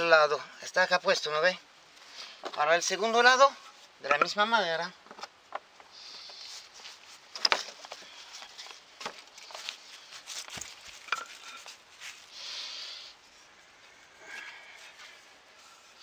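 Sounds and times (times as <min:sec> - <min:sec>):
wooden pole knocking on iron stakes: 0:04.0 - 0:04.4, 0:11.0 - 0:11.7
soft rustling: 0:05.0 - 0:16.0.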